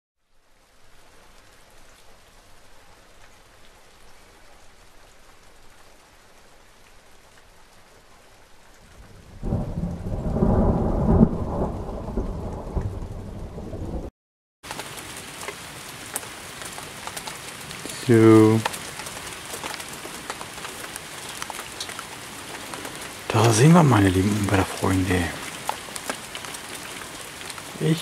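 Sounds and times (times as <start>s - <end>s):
rain falling: 0.2s - 28.0s
rolling thunderclap: 9.0s - 14.1s.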